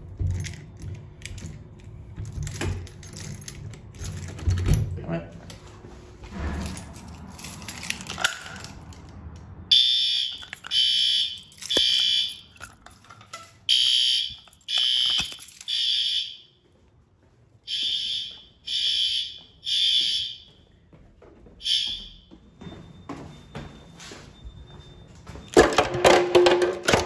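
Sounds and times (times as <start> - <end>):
fire alarm horns blasting: 9.7 - 12.6, 13.7 - 16.7, 17.6 - 20.8, 21.6 - 26.1.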